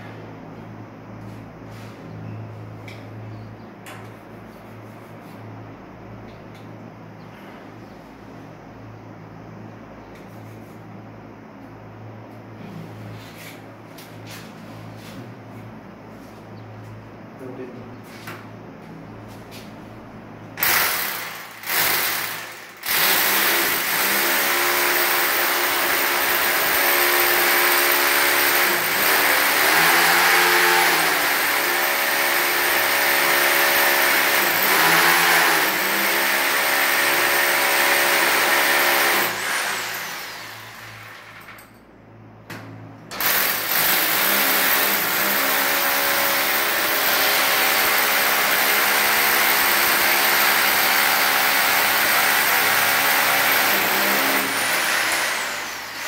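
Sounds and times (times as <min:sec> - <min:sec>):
electric drill boring into tile: 0:20.6 - 0:41.3, 0:43.2 - 0:56.0.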